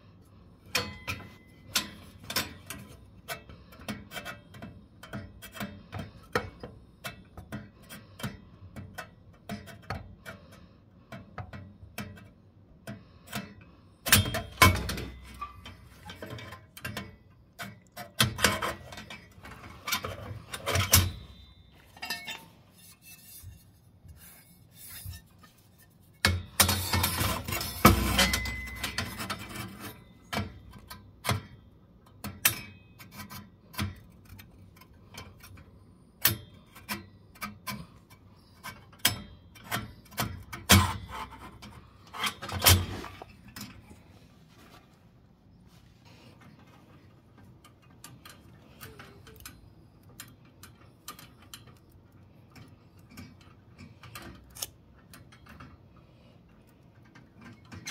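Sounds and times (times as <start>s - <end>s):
metal burner tubes clicking and scraping: 0.0s - 45.2s, 46.0s - 57.9s.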